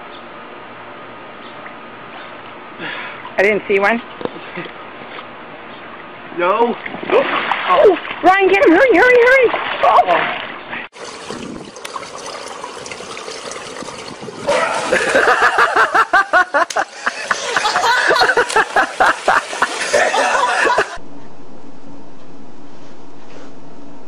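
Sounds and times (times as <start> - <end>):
water splashing: 6.7 - 21.0
people laughing: 14.5 - 21.0.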